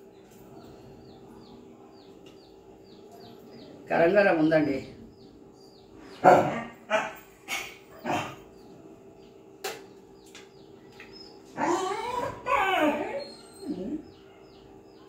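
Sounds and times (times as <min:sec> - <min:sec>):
dog barking: 0:06.2 - 0:08.4.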